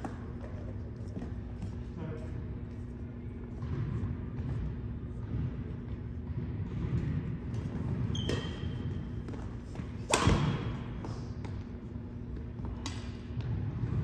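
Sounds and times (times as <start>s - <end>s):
steady low hum: 0.0s - 14.0s
rackets hitting shuttlecock: 6.8s - 11.9s, 12.6s - 13.6s.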